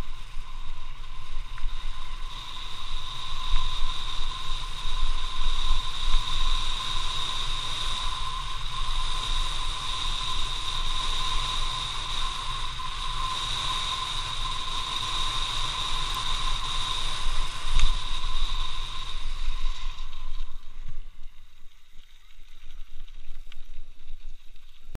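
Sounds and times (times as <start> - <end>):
steady high whistle: 0.0 - 21.2
wind rushing over microphone: 0.0 - 21.7
bicycle tyres rumbling on dirt: 0.0 - 25.0
tyres crackling on gravel: 10.9 - 25.0.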